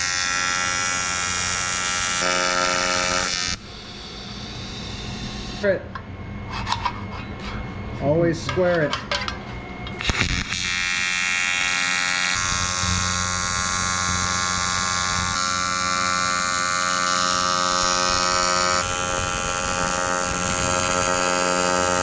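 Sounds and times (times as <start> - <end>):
welding arc buzzing: 0.0 - 5.8, 9.8 - 22.0.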